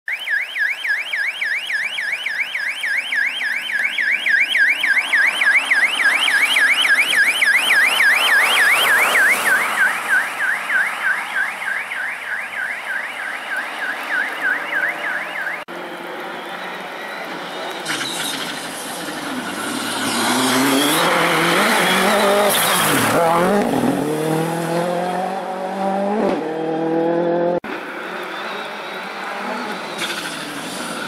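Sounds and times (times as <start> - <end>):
yelping siren: 0.1 - 18.1, 19.4 - 23.9
car engine: 2.8 - 31.0.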